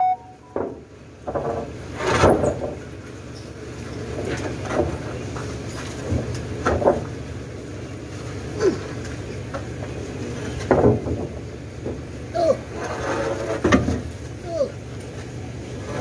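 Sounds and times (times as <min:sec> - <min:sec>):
crane engine humming: 0:00.0 - 0:01.2.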